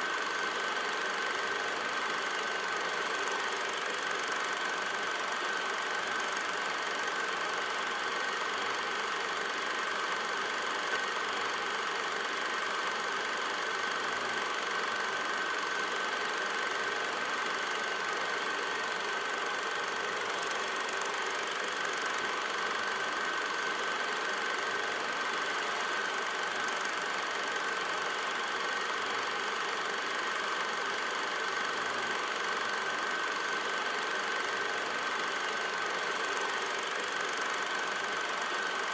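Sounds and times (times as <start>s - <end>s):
film projector whirring and clattering: 0.0s - 38.9s.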